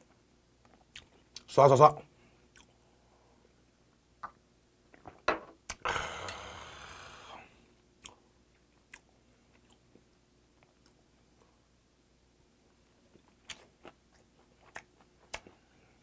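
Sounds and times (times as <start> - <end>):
man exhaling breathily: 5.8 - 7.5.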